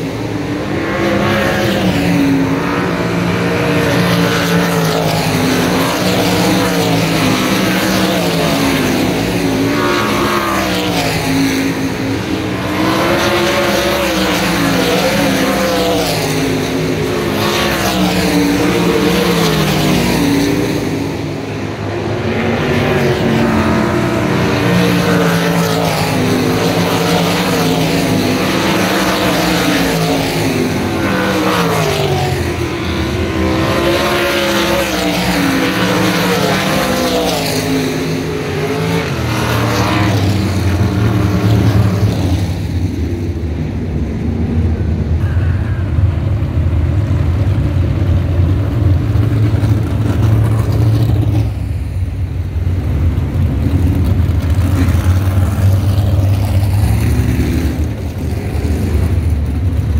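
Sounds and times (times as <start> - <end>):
racing car engines revving: 0.0 - 59.9.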